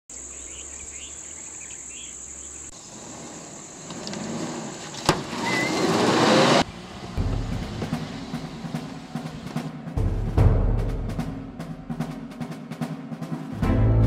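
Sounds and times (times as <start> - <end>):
bird chirps: 0.1 - 3.9
high insect drone: 0.1 - 5.1
vehicle engine running: 0.1 - 10.4.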